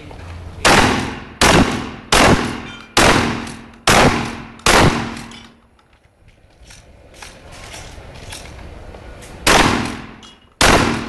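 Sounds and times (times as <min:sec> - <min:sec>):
shotgun blasts with echo: 0:00.6 - 0:05.4, 0:09.4 - 0:11.0.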